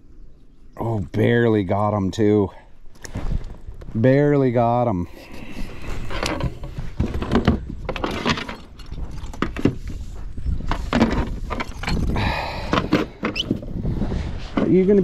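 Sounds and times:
fishing gear clattering: 0:05.2 - 0:10.0, 0:10.6 - 0:13.4.

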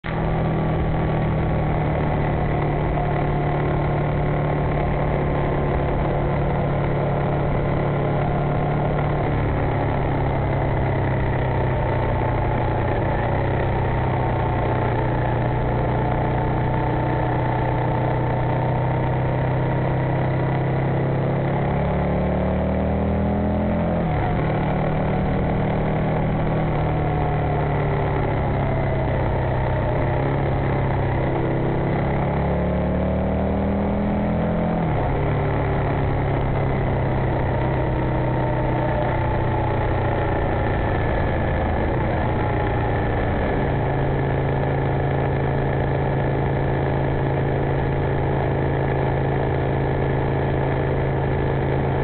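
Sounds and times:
motorcycle engine running: 0:00.0 - 0:52.0
wind and road noise: 0:00.0 - 0:52.0.

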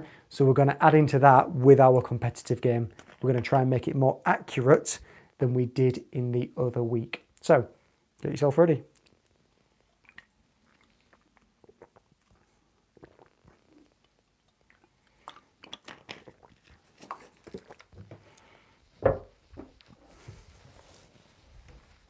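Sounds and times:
gulping from water bottle: 0:10.0 - 0:14.0
loud thump: 0:19.0 - 0:19.7.

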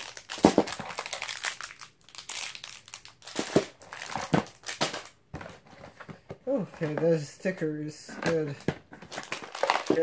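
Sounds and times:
plastic bags crinkling: 0:00.0 - 0:05.2, 0:08.1 - 0:10.0.

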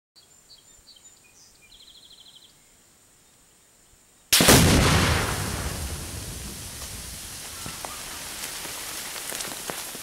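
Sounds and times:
faint bird chirps: 0:00.2 - 0:04.3, 0:07.5 - 0:08.2
loud explosion blast: 0:04.4 - 0:07.4.

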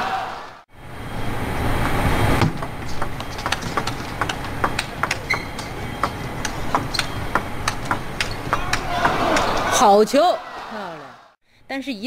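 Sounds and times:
crowd cheering: 0:00.0 - 0:00.6, 0:03.5 - 0:11.4
table tennis ball clicking: 0:03.0 - 0:09.7.

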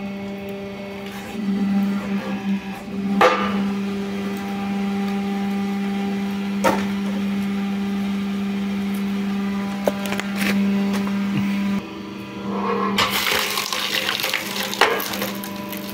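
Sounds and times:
log splitter motor humming: 0:00.0 - 0:15.9
wood cracking and splitting: 0:13.1 - 0:15.9.

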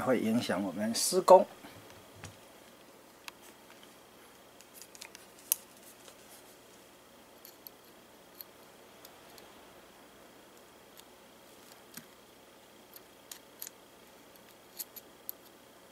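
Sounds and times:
small metal parts clinking: 0:13.0 - 0:15.5.

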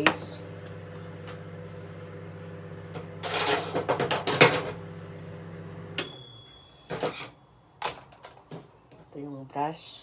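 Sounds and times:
microwave oven humming: 0:00.0 - 0:07.1.

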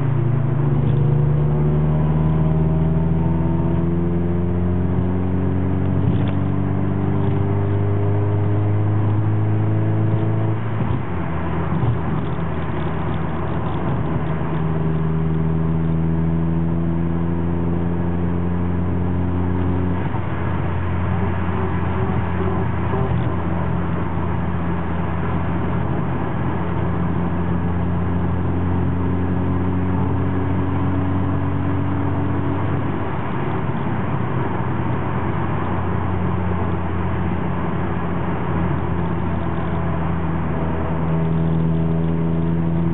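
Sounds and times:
car engine accelerating: 0:00.0 - 0:42.9.

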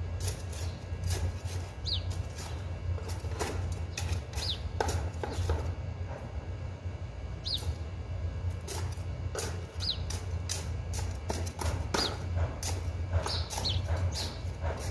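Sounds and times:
trowel scraping potting soil: 0:00.0 - 0:05.7, 0:08.5 - 0:14.9
steady low hum: 0:00.0 - 0:14.9
bird chirping: 0:01.8 - 0:02.2, 0:03.9 - 0:04.6, 0:07.4 - 0:07.8, 0:09.8 - 0:10.1, 0:13.3 - 0:14.4.

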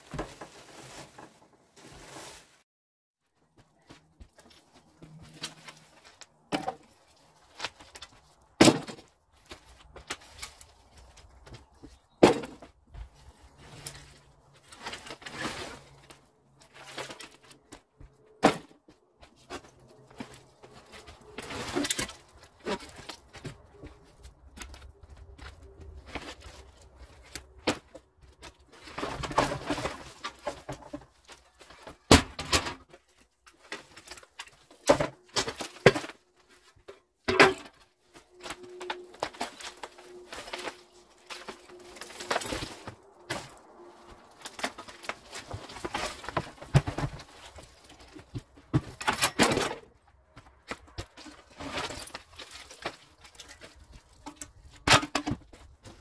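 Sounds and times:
rustling: 0:00.0 - 0:02.6
debris knocking and thudding: 0:08.6 - 0:09.2, 0:28.8 - 0:33.0, 0:44.4 - 0:56.0.

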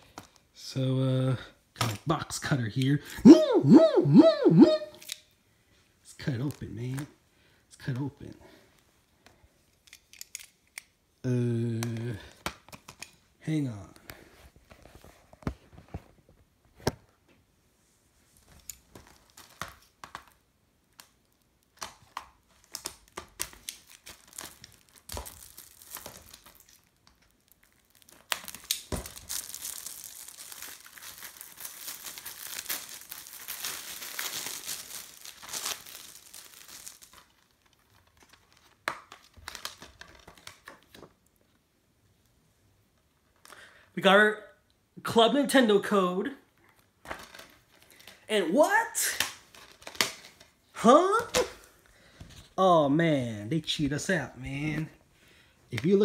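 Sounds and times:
plastic wrap crinkling and tearing: 0:18.4 - 0:41.3, 0:46.6 - 0:48.3, 0:48.9 - 0:52.6.

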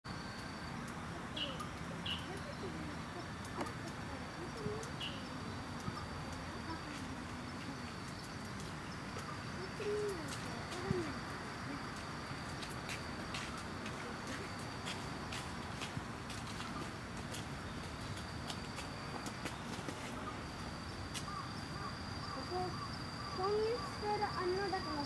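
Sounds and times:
faint bird chirps: 0:00.1 - 0:12.1, 0:19.6 - 0:25.0
high insect trill: 0:00.1 - 0:25.0.

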